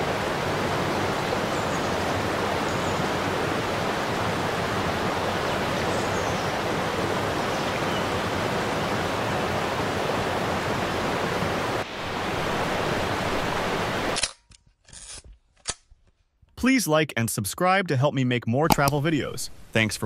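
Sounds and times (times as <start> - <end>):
large waterfall rushing: 0.0 - 14.2.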